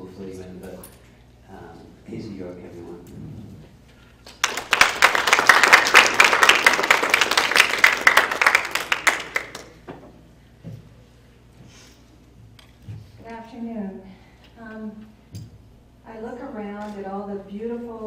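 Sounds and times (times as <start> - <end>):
audience applauding: 4.2 - 9.8.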